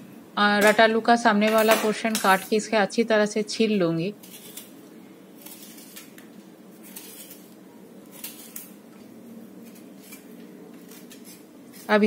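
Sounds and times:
blade scraping root skin: 4.2 - 4.8, 5.4 - 6.2, 6.8 - 8.8, 9.6 - 12.0.

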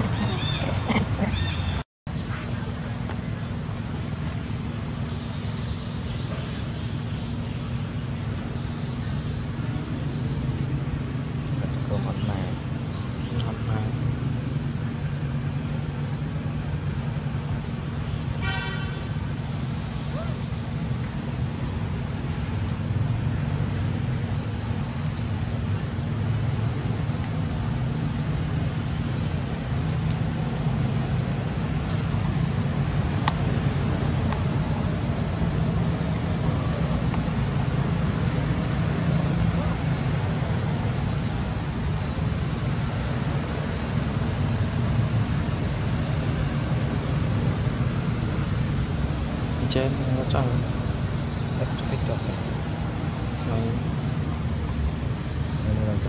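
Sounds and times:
high squeaky calls: 0.0 - 1.8
low rumble of motor traffic: 0.0 - 56.0.

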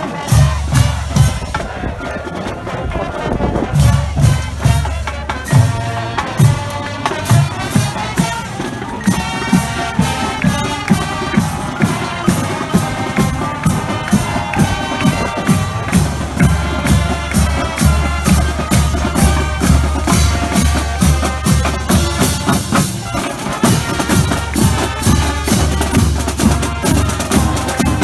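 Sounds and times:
marching band brass: 0.0 - 28.0.

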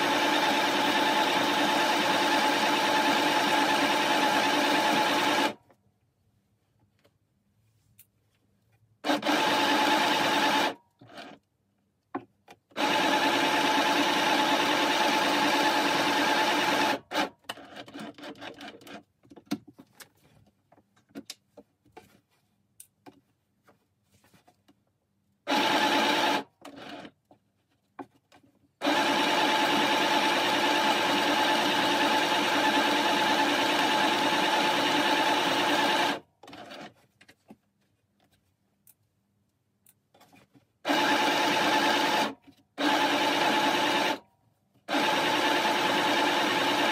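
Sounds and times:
sewing machine stitching: 0.0 - 5.6, 9.0 - 11.4, 12.7 - 19.1, 25.5 - 27.2, 28.8 - 37.0, 40.9 - 44.2, 44.9 - 46.9.

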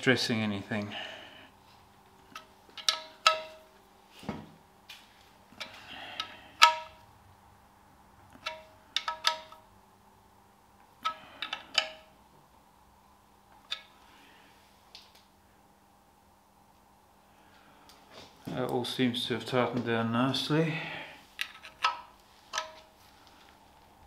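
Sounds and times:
spanner clinking on metal bolts: 2.3 - 3.6, 8.4 - 9.6, 11.0 - 12.1.

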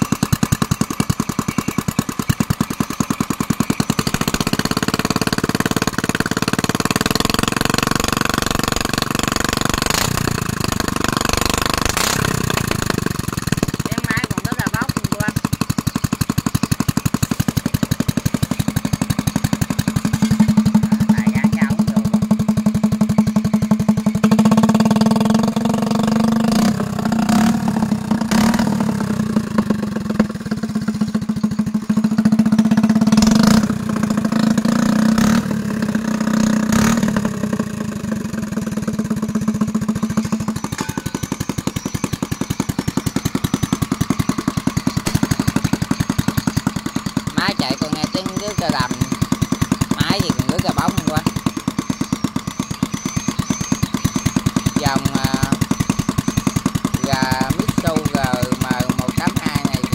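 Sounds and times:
single-cylinder engine running: 0.0 - 59.9
sharp clicks: 45.0 - 46.4.

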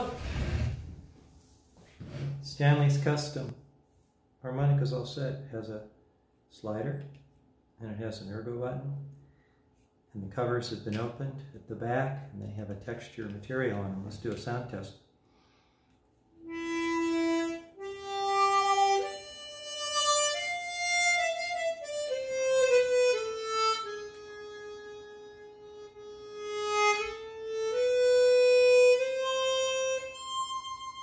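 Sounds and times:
harmonica melody: 16.3 - 31.0.

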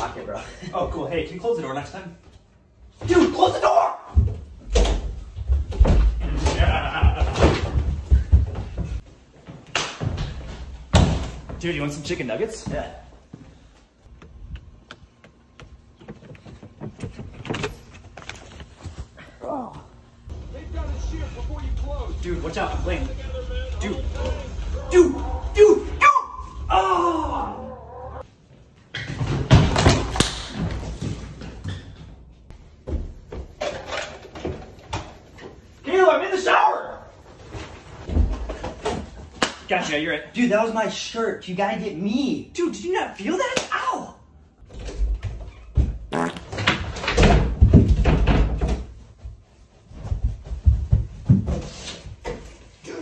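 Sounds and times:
people running and scuffling: 4.1 - 20.1, 47.5 - 53.0
people running on hard floor: 5.3 - 9.0, 49.8 - 51.9.

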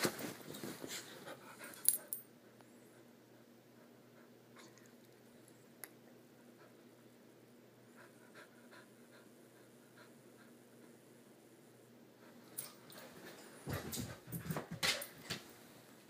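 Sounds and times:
low steady hum: 0.0 - 16.0
puppy panting: 7.9 - 10.9.

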